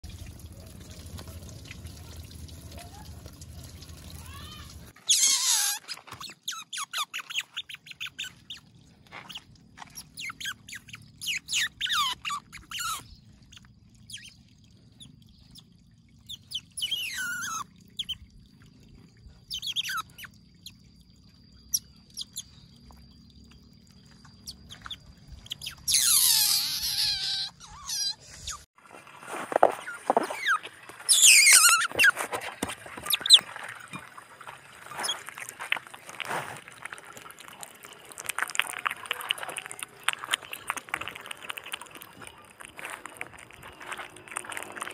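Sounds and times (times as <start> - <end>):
baby otter squeaking: 4.4 - 8.6, 9.3 - 14.3, 16.3 - 18.2, 19.5 - 20.3, 25.4 - 28.7, 29.8 - 32.2, 33.0 - 33.4.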